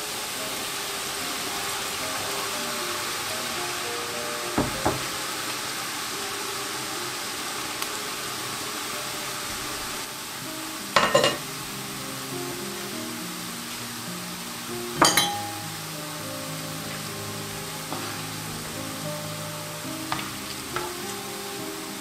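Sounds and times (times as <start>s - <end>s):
batter frying in hot oil: 0.0s - 22.0s
utensil clinking on pan: 11.0s - 11.4s, 15.0s - 15.8s.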